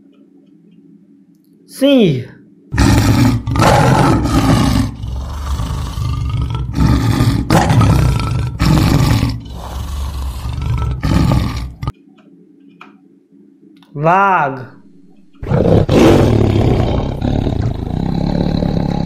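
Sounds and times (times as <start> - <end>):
lion roaring: 2.7 - 11.9, 15.4 - 19.0.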